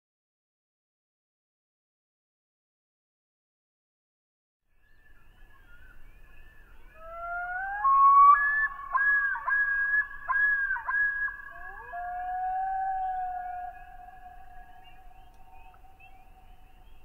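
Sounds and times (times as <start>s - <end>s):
loon calling: 7.0s - 16.5s.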